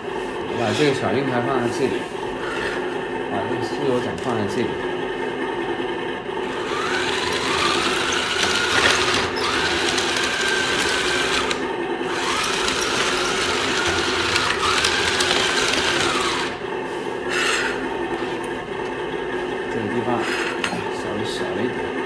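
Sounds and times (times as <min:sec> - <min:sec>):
toy tank electric motors whirring: 0:06.5 - 0:16.6.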